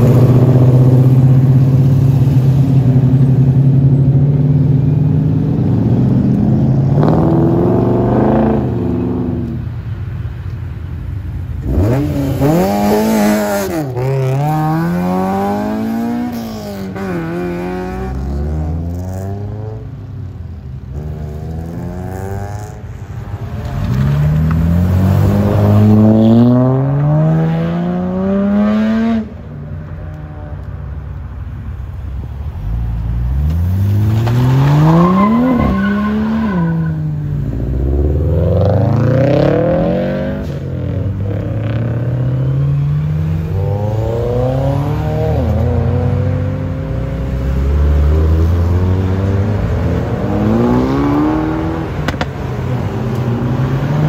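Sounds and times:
car engines revving hard: 0:00.0 - 0:09.7, 0:11.5 - 0:20.1, 0:20.8 - 0:22.9, 0:23.5 - 0:30.7, 0:32.6 - 0:54.0.

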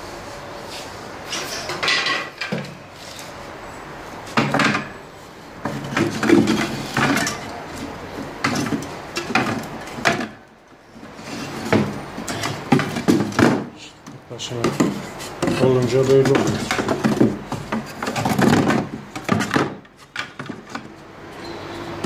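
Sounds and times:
wooden slats knocking and clattering: 0:01.7 - 0:02.8, 0:04.3 - 0:05.0, 0:05.6 - 0:07.6, 0:08.2 - 0:10.5, 0:11.4 - 0:21.0.

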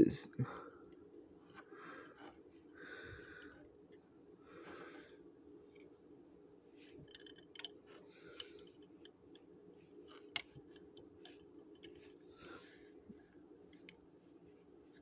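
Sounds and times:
plastic toy pieces clicking: 0:07.0 - 0:07.8.

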